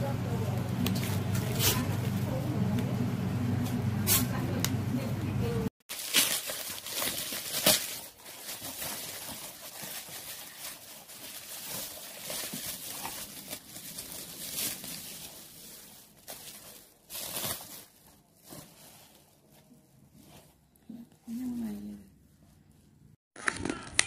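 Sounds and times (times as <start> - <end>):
bubble wrap and cardboard rustling: 5.8 - 24.0.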